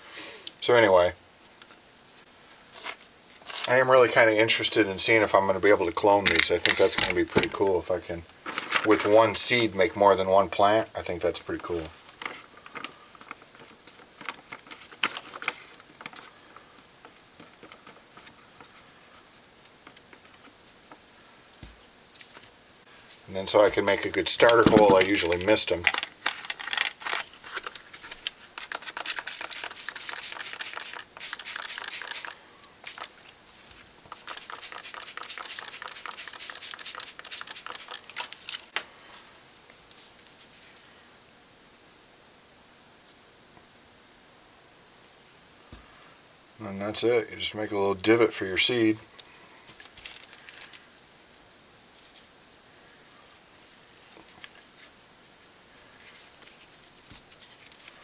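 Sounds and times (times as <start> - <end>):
potting mix patters and ticks: 0.4 - 41.3
spray bottle squirts hissing: 29.0 - 33.1, 34.1 - 38.1.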